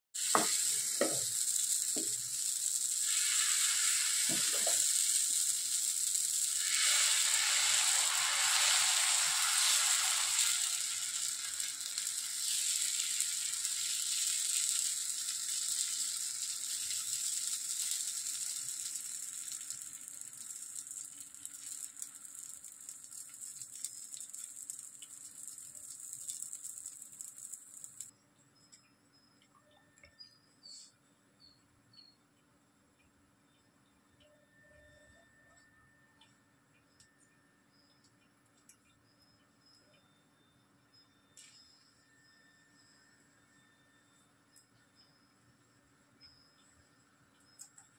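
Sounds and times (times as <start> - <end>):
batter sizzling on hot pan: 0.2 - 28.1.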